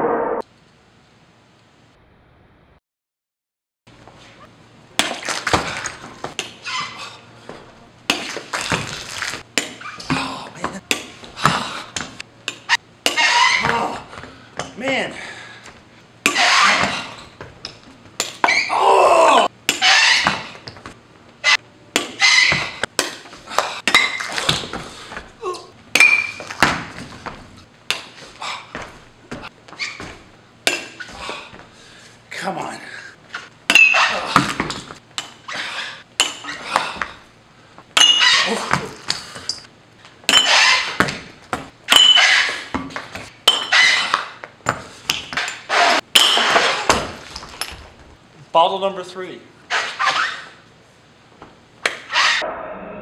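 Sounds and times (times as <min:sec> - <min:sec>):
kicks striking glass bottle: 0:25.9 - 0:27.2, 0:33.7 - 0:34.9, 0:38.0 - 0:38.9, 0:40.3 - 0:47.9.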